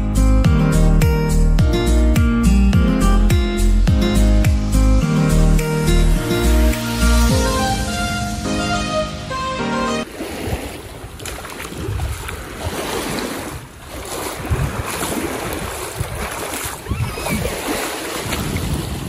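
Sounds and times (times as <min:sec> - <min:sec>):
background music: 0:00.0 - 0:10.1
small waves breaking in surf: 0:10.0 - 0:19.0
wind rumbling on microphone: 0:10.3 - 0:19.0.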